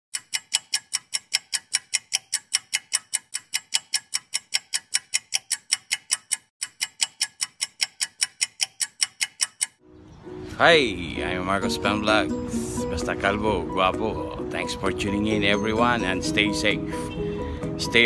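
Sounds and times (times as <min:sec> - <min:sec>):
rapid clock ticking: 0:00.1 - 0:09.8.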